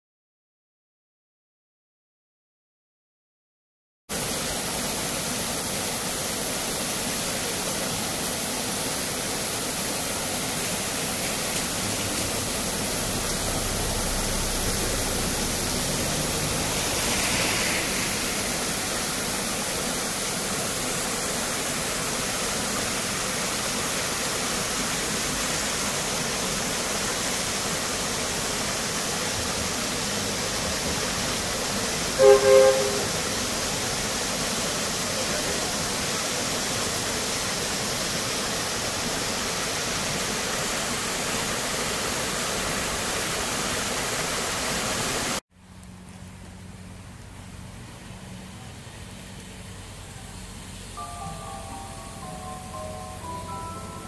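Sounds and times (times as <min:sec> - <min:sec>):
stream running over stones: 0:04.1 - 0:50.9
locomotive hoots: 0:32.2 - 0:33.4.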